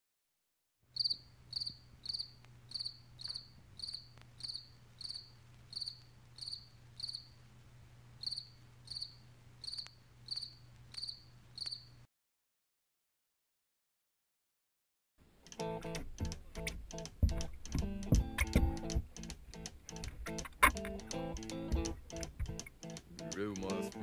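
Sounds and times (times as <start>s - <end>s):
cricket chirping: 0.9s - 7.4s, 8.2s - 12.1s
faint low hum: 0.9s - 12.1s.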